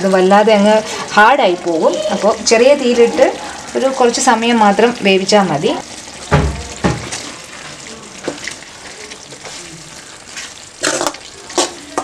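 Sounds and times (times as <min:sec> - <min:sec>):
gravy sizzling in a pan: 0:00.0 - 0:12.0
metal spoon scraping a pan: 0:10.8 - 0:12.0.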